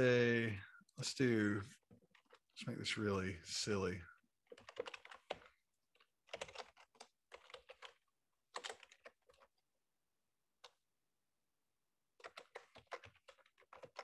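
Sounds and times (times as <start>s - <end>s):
typing on computer keyboard: 4.4s - 9.5s, 12.2s - 14.0s.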